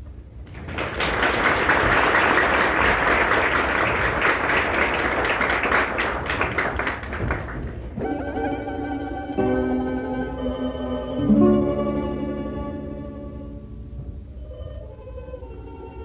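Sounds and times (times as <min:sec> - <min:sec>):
audience applauding: 0:00.5 - 0:08.0
music piece: 0:07.9 - 0:16.0.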